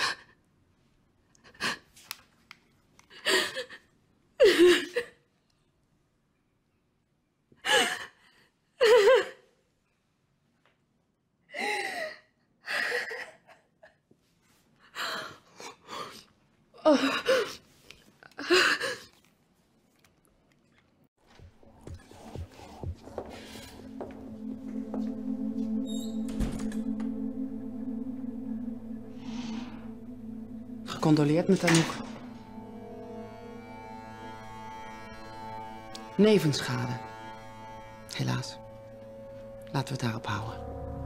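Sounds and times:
woman sobbing: 3.1 - 5.3, 7.6 - 9.5, 11.6 - 14.0.

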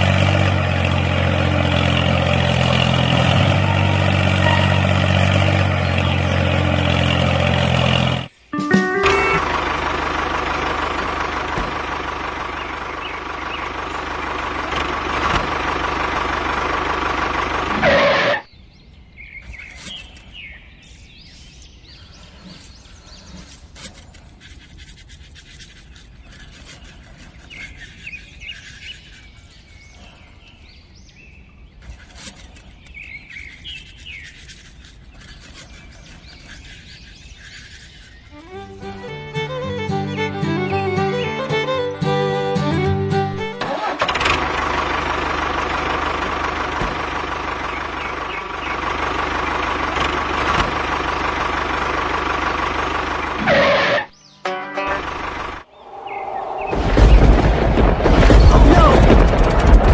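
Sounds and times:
toy tractor motor drone: 0.0 - 8.3, 9.1 - 18.5, 19.4 - 20.5, 21.3 - 30.6, 31.8 - 54.1
bird chirps: 12.5 - 14.0, 18.4 - 39.6, 47.6 - 49.7, 53.2 - 54.6, 55.6 - 57.3
small clicks and rustles: 19.4 - 20.5, 21.3 - 30.7, 31.8 - 39.0.

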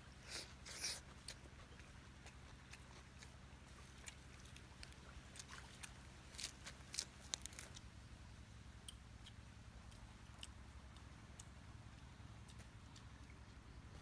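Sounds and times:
chewing crunches: 0.3 - 7.9, 8.8 - 14.0
crunchy bite: 4.0 - 7.8.

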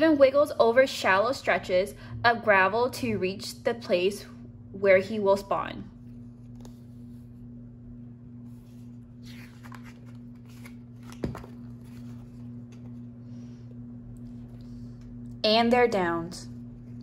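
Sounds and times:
low hum: 0.0 - 17.0
paper page turning: 8.4 - 13.1.

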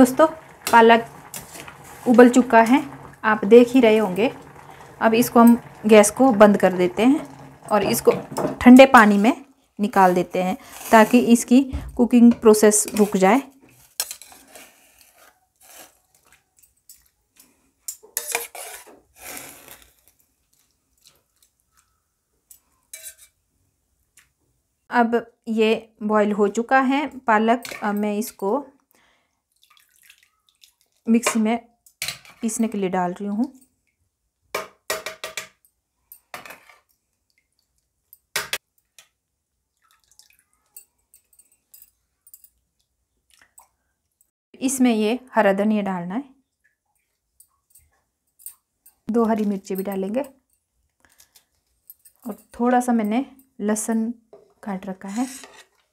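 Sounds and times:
metal spoon scraping a saucepan: 0.6 - 9.3, 9.9 - 11.5, 12.4 - 16.3, 17.9 - 20.1, 22.5 - 23.4, 55.0 - 55.9
water dripping: 27.8 - 32.0, 36.9 - 44.3, 46.4 - 51.0
water splashing: 29.5 - 31.2, 39.7 - 40.8.

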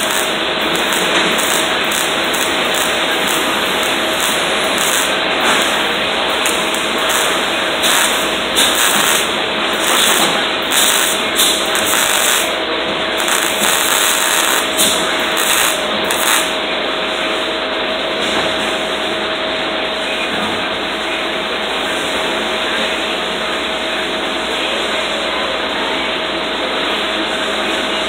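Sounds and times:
welding arc sizzling and crackling: 0.0 - 16.8
steady hum: 0.0 - 28.0.

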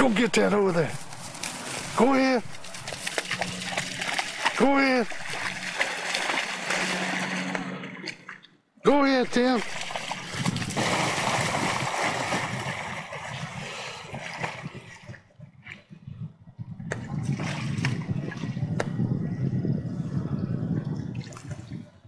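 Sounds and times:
low rumbling noise: 0.0 - 22.0
dog splashing in water: 2.5 - 8.4, 9.4 - 15.0.

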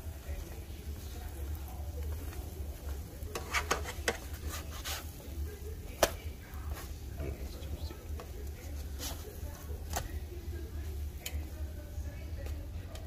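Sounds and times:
bread sizzling: 0.0 - 13.0
plastic spatula scraping frying pan: 3.3 - 5.2.

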